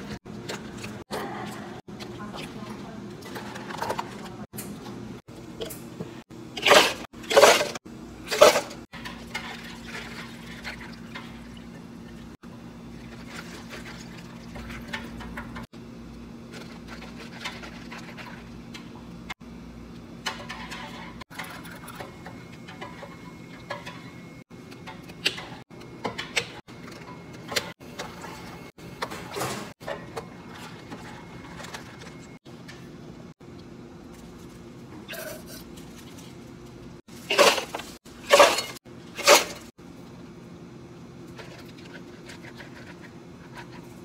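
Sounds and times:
cafe equipment hum: 0.0 - 44.0
plastic cups and lids rattling: 37.2 - 39.7.

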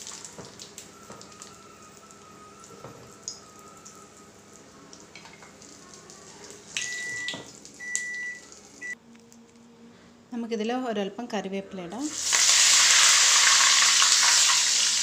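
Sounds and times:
oil sizzling and crackling: 0.0 - 4.0, 12.1 - 15.0.

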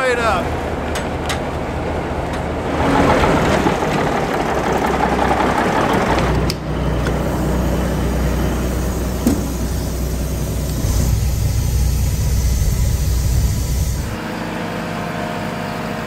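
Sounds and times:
truck engine running: 0.5 - 14.2.

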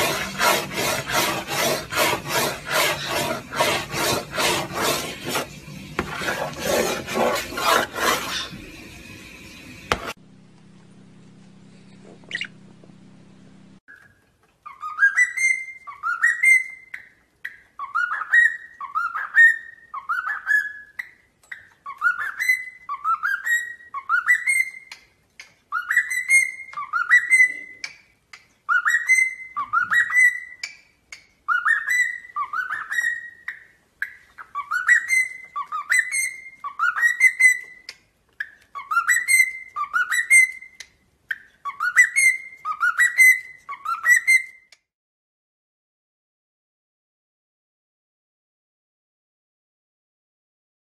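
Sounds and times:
cockatiel whistling: 14.7 - 17.1, 21.8 - 25.0, 25.7 - 27.9, 28.7 - 30.7, 31.5 - 37.8, 38.8 - 40.8, 41.6 - 44.6.

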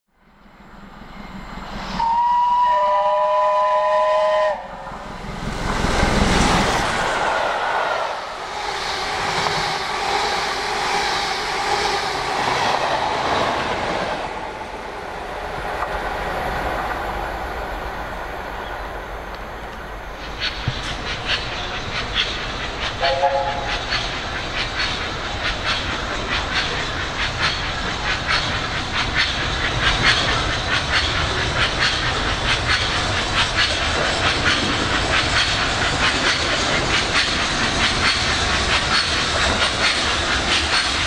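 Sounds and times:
train rumbling past: 0.1 - 41.0
steam locomotive whistle: 1.8 - 5.0, 23.0 - 24.0.

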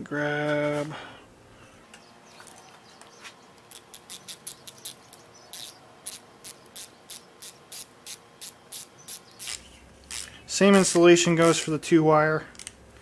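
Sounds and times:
ratcheting wrench clicking: 3.7 - 10.3.

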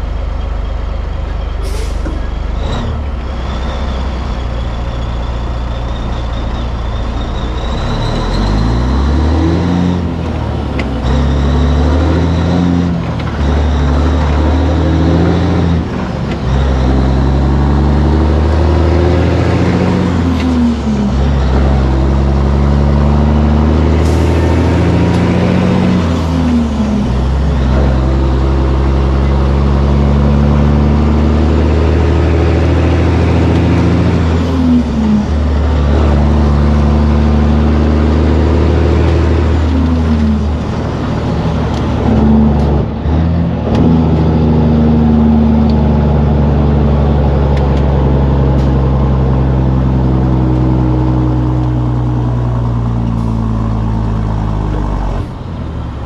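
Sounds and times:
diesel truck engine pulling: 0.0 - 56.0.

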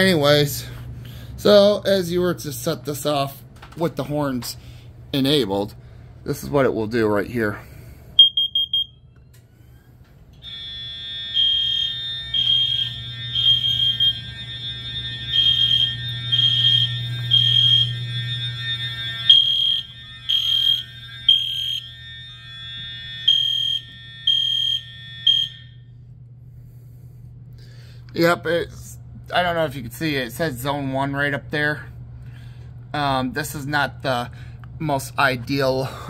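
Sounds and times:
detector quick beeps: 8.2 - 8.9
alarm horns beeping: 8.2 - 9.0, 10.4 - 26.1
steady alarm tone: 8.2 - 9.0, 10.4 - 26.1.

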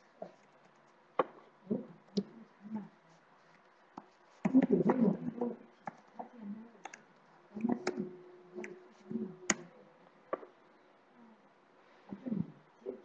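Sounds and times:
choppy voice over online call: 4.4 - 6.8, 7.5 - 9.8, 12.1 - 13.0.

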